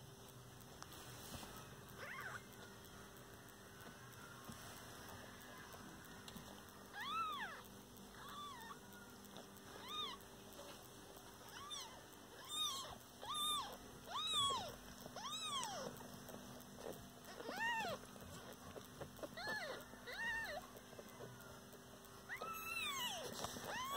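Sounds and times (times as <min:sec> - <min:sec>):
kitten mewing: 0:19.2 - 0:20.6.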